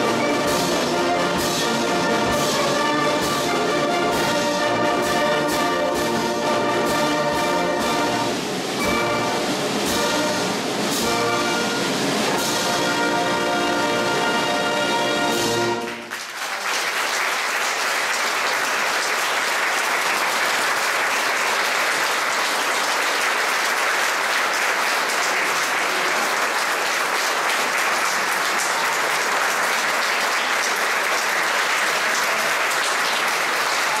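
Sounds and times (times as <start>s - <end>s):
audience applauding: 11.0s - 34.0s.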